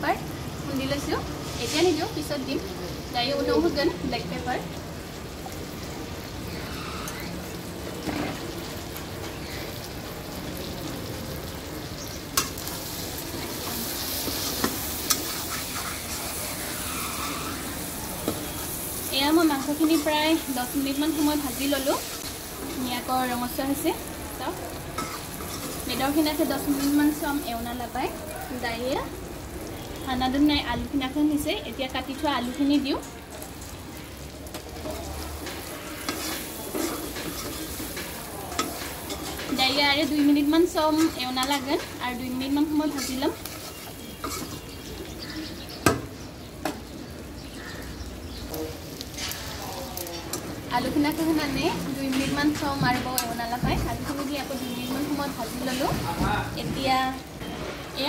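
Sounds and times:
chicken sizzling in a wok: 0.0s - 58.0s
metal spatula scraping: 6.5s - 7.4s, 12.4s - 23.7s, 24.4s - 27.4s, 34.8s - 44.8s
spatula clanking against pan: 42.9s - 44.7s.

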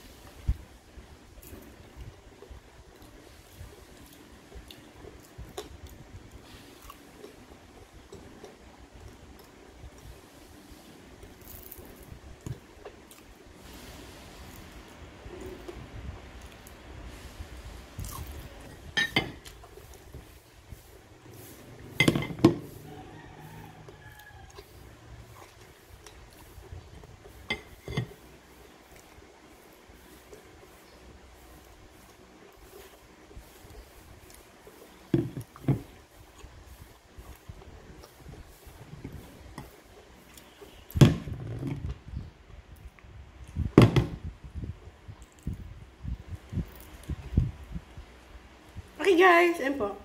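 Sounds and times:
close-up eating sounds: 0.0s - 49.0s
eating sounds: 1.4s - 17.0s, 23.7s - 27.5s
tableware handling noise: 19.0s - 19.5s, 21.9s - 22.7s, 27.4s - 28.2s
tableware knocking on table: 22.0s - 22.6s.

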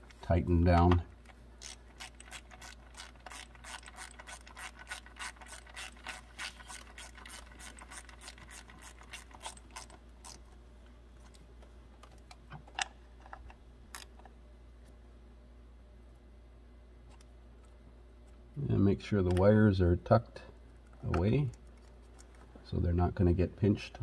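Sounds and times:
ratchet wrench clicking: 1.6s - 10.4s.

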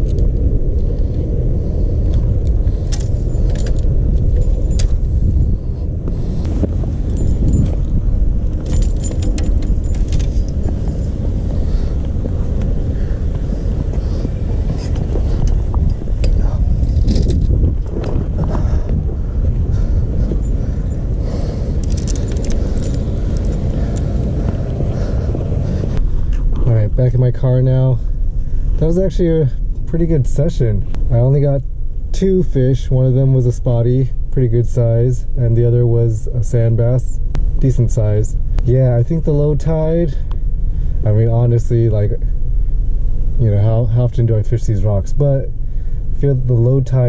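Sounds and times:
wind rumbling on microphone: 0.0s - 47.0s
light metallic jingling: 2.8s - 5.4s, 6.5s - 17.5s, 19.6s - 25.9s
fishing tackle clicking and clinking: 8.6s - 10.8s, 20.3s - 24.2s.

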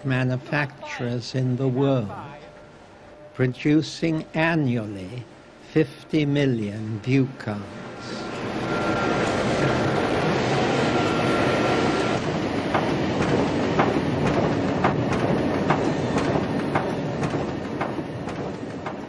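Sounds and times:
printing press clattering: 12.2s - 19.0s.

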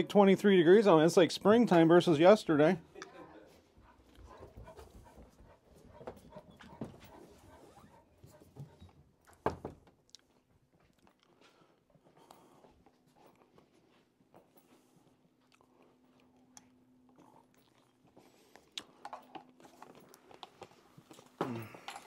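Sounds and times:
footsteps: 3.5s - 9.0s.

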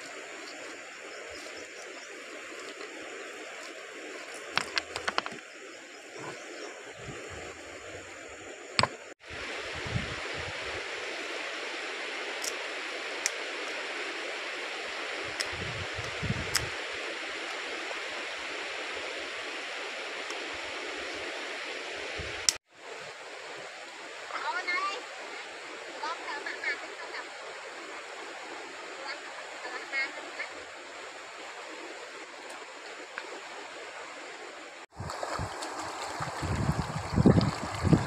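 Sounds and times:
river water flowing over stones: 0.0s - 38.0s
stones clacking together: 4.4s - 5.5s.

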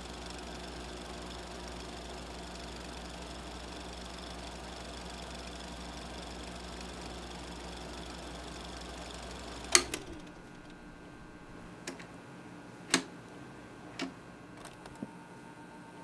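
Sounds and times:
low machine hum: 0.0s - 16.0s
loud click: 9.7s - 10.8s.

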